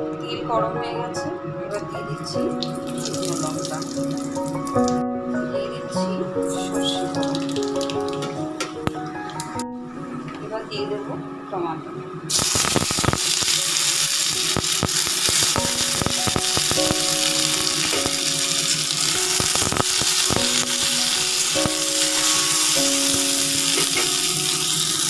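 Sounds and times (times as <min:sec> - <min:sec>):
background music: 0:00.0 - 0:25.0
tomatoes sizzling in hot oil: 0:12.3 - 0:25.0.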